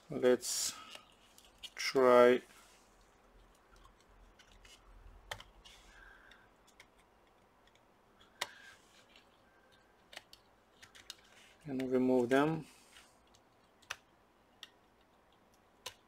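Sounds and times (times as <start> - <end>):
small clicks and taps of cables: 3.4 - 11.9, 13.2 - 16.0.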